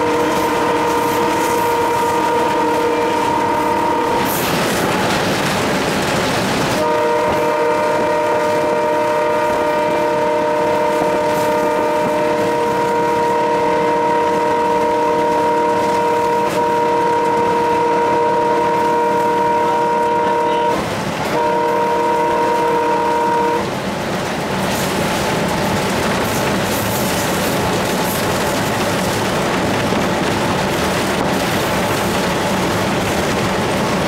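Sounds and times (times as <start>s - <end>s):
locomotive horn blast: 0.0s - 4.5s, 6.8s - 23.7s
wheels clattering on rails: 0.0s - 10.0s, 23.7s - 34.0s
locomotive running: 0.0s - 34.0s.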